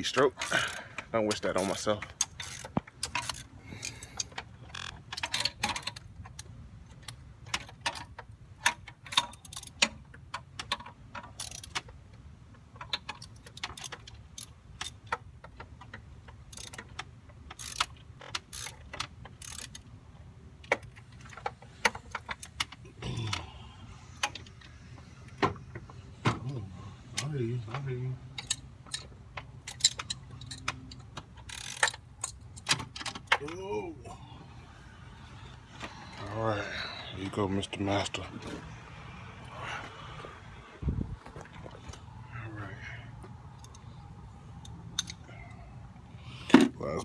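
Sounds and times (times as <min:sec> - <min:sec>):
hand ratchet clicking: 0:00.4 - 0:06.4, 0:08.6 - 0:12.0, 0:12.8 - 0:19.9, 0:28.3 - 0:33.4.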